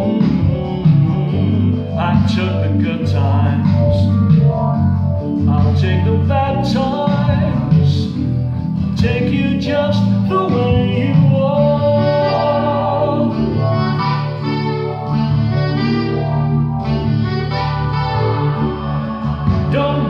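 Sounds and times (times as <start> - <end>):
man singing: 0.0 - 4.3, 5.4 - 14.1, 19.4 - 20.0
keyboard playing chords: 0.0 - 20.0.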